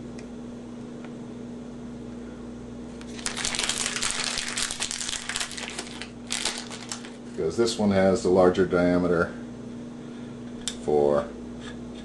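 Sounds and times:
plastic packaging crinkling: 0:03.0 - 0:07.5.

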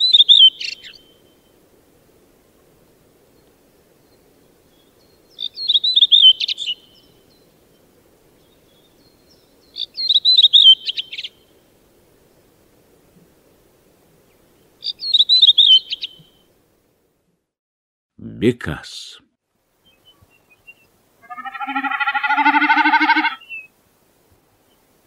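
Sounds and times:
redwing singing: 0:03.4 - 0:11.4, 0:14.3 - 0:16.3, 0:19.8 - 0:23.7.

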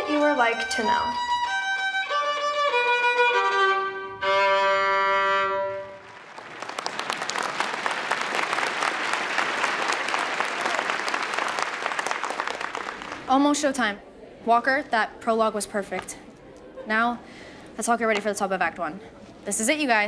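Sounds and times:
solo violin melody: 0:00.0 - 0:06.1
audience applauding: 0:05.9 - 0:13.3.

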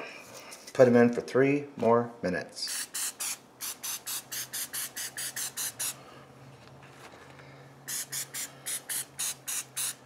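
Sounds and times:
oil sprayer spritzing: 0:02.7 - 0:06.0, 0:07.9 - 0:10.0.

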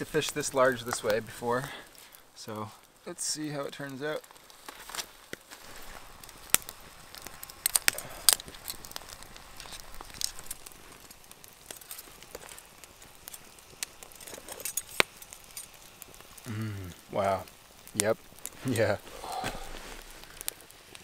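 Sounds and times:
campfire crackling and popping: 0:00.0 - 0:21.0.

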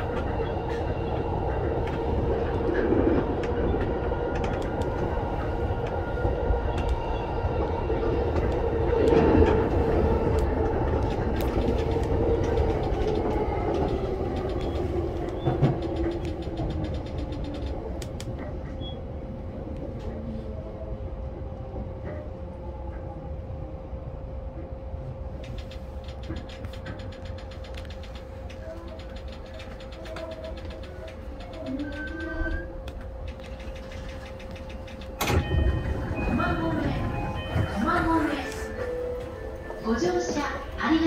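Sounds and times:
electric train on rails: 0:00.0 - 0:41.0
wheel and rail-joint clatter: 0:08.3 - 0:19.0, 0:25.4 - 0:41.0.

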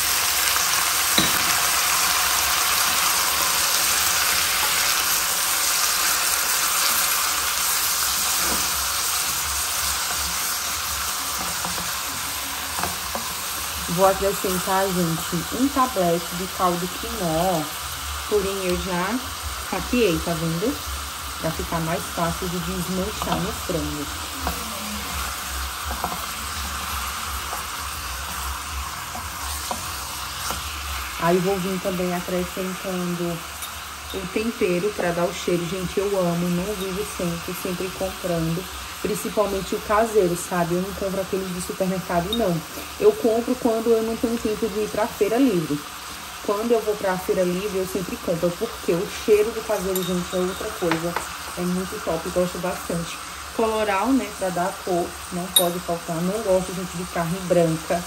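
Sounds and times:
chicken sizzling in hot oil: 0:00.0 - 0:58.0
spatula turning food: 0:00.2 - 0:17.0, 0:20.8 - 0:32.8
spoon tapping pot: 0:01.2 - 0:01.6, 0:49.9 - 0:51.3, 0:55.5 - 0:55.8.

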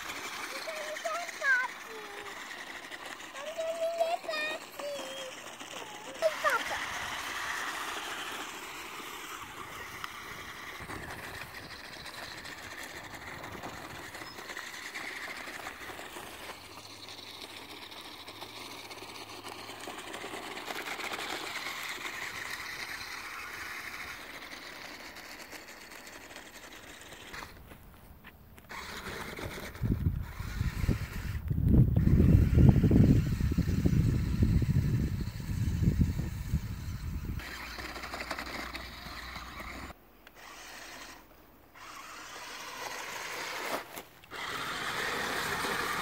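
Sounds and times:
toy electric motors whirring: 0:00.0 - 0:27.8, 0:28.6 - 0:46.0.

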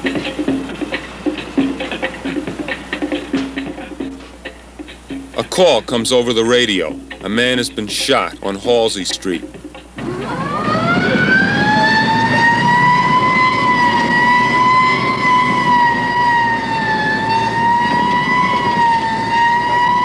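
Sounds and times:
car engine rumble and road noise: 0:00.0 - 0:20.0
police siren wailing: 0:10.0 - 0:20.0.

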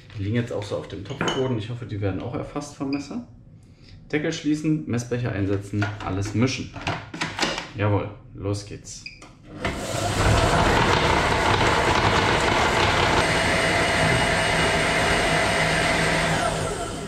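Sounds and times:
kitchen machine motor whirring: 0:09.5 - 0:17.0.

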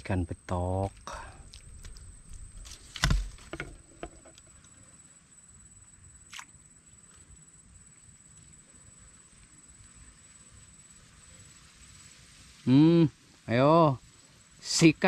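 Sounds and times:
faint steady hiss: 0:00.0 - 0:15.0
handling thump and rustle: 0:00.8 - 0:04.5.

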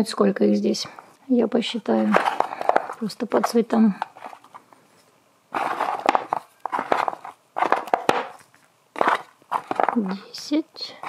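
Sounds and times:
eggs clacking against wood: 0:05.7 - 0:10.1
foil rustling: 0:08.9 - 0:10.2.

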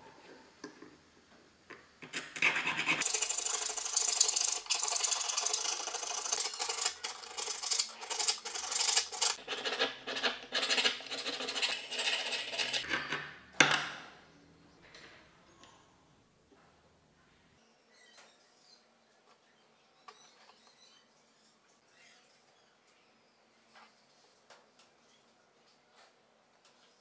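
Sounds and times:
file rasping on metal: 0:02.2 - 0:12.8.

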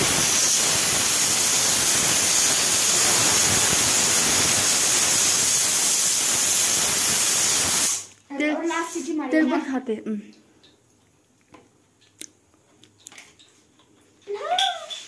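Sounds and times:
pressure cooker steam hissing: 0:00.0 - 0:08.1.

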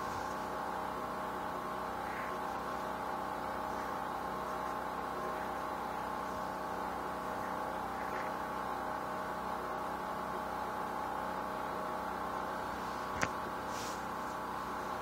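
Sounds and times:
steady hum of held tones: 0:00.0 - 0:15.0.

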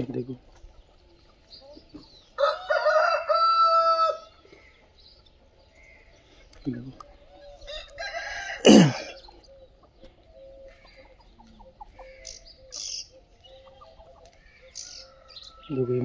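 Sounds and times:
chicks cheeping: 0:00.0 - 0:16.0
hens clucking: 0:00.0 - 0:16.0
rooster crowing: 0:02.4 - 0:04.4, 0:07.6 - 0:09.2.

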